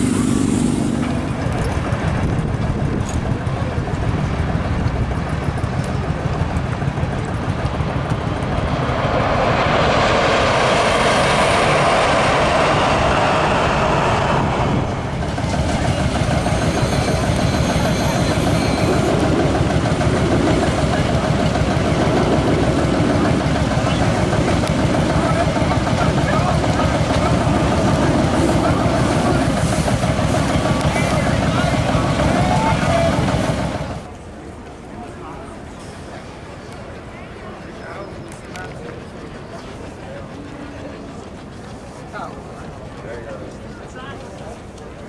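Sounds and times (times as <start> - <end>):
heavy machinery engines running: 0.0 - 34.2.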